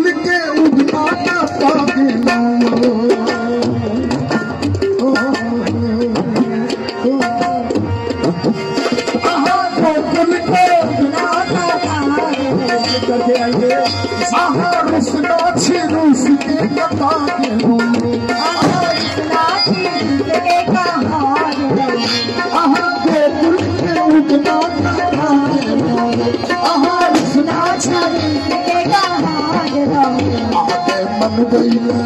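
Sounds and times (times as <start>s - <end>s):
tabla drumming: 0.0s - 32.0s.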